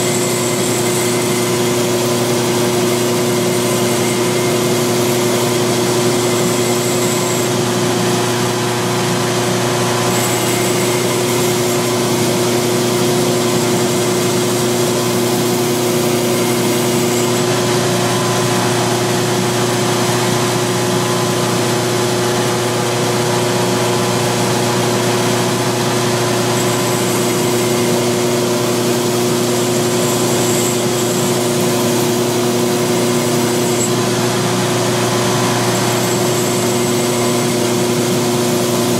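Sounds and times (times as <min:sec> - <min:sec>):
steel grinding against belt: 0:00.0 - 0:08.1, 0:10.0 - 0:18.8, 0:25.4 - 0:38.9
belt grinder motor running: 0:00.0 - 0:38.9.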